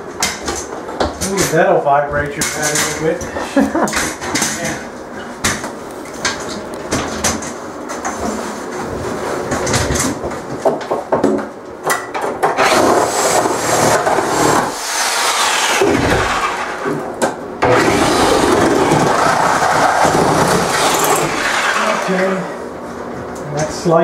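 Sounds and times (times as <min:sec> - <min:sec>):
reciprocating saw cutting wood: 0:12.6 - 0:16.9, 0:17.6 - 0:22.4.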